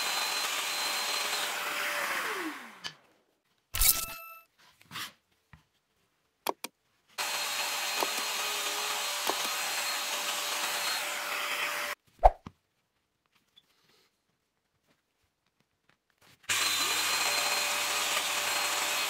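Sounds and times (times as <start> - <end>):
power joiner cutting wood: 0.0 - 3.0, 7.2 - 12.0, 16.5 - 19.0.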